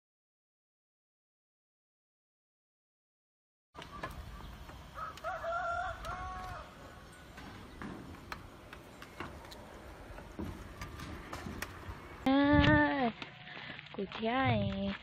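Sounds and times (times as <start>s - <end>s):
rooster crowing: 4.9s - 7.2s.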